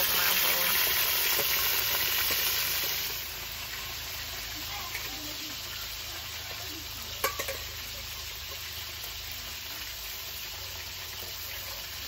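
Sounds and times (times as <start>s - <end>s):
fish sizzling over fire: 0.0s - 12.0s.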